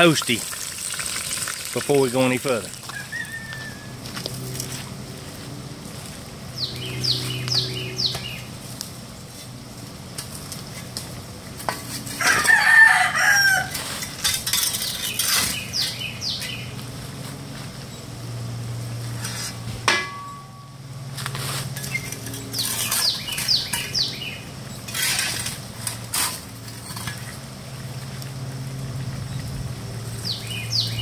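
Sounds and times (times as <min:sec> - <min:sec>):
metal shovel scraping coals: 0:00.0 - 0:17.8, 0:18.9 - 0:30.8
rooster crowing: 0:02.8 - 0:04.6, 0:12.1 - 0:13.9
small bird chirping: 0:06.6 - 0:08.5, 0:21.8 - 0:24.4, 0:30.2 - 0:31.0
sharp clank of coals tipped: 0:19.8 - 0:20.7.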